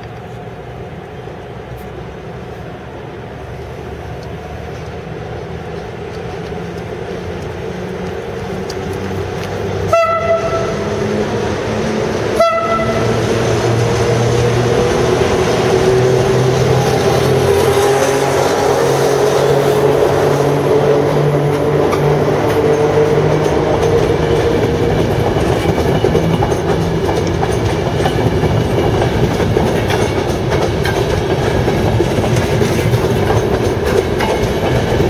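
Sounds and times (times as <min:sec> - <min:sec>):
electric locomotive drone: 0:00.0 - 0:35.0
train horn blasts: 0:09.9 - 0:10.9, 0:12.3 - 0:13.3.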